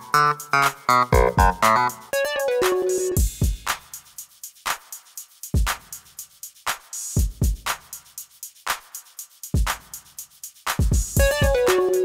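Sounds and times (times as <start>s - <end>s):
plucked notes music: 0.0s - 3.2s, 11.2s - 12.0s
low thumping beat: 0.9s - 1.9s, 2.6s - 4.2s, 5.4s - 6.4s, 7.2s - 8.2s, 9.5s - 12.0s.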